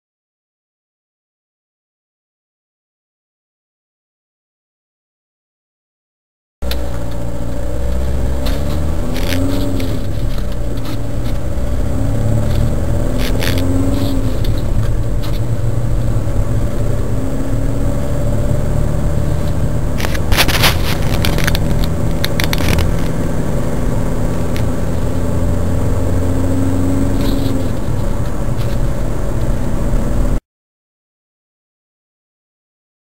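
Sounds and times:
car engine and tyre drone: 6.6 - 30.4
rattling clicks: 19.3 - 23.2.

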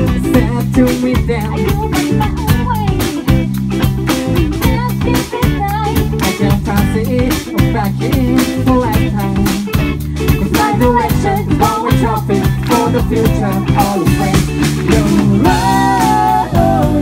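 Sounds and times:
man singing: 0.0 - 2.3, 6.2 - 9.8, 10.4 - 17.0
drum kit beat: 0.0 - 17.0
electric bass: 0.0 - 17.0
electric guitar: 0.0 - 17.0.

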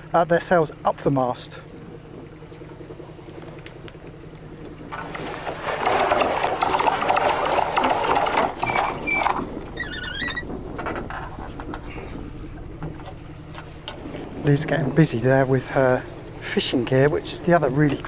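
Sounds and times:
boat engine humming: 0.0 - 18.0
short wavering squeak: 8.6 - 10.5.

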